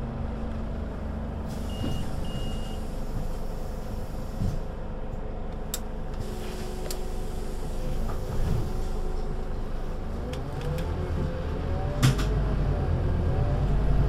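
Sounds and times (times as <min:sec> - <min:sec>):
bus diesel engine running: 0:00.0 - 0:14.0.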